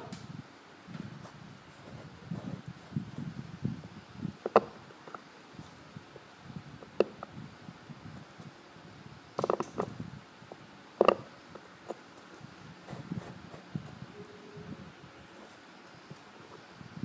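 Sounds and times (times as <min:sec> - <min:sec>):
faint handling rustle: 0:11.5 - 0:14.6, 0:15.2 - 0:17.0.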